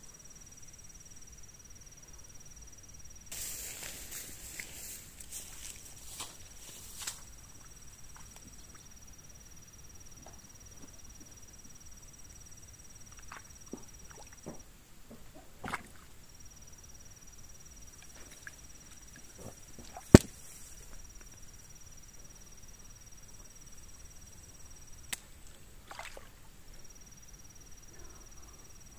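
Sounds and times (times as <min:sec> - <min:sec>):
high-pitched insect trill: 0:00.0 - 0:15.2, 0:15.9 - 0:28.9
sharp crack: 0:20.1 - 0:20.4.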